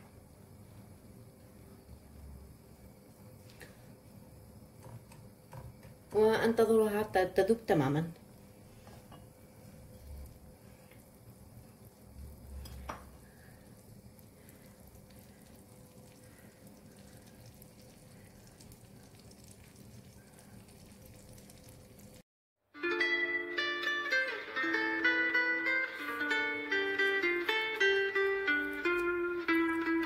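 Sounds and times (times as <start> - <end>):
butter sizzling in a frying pan: 9.5 - 22.2.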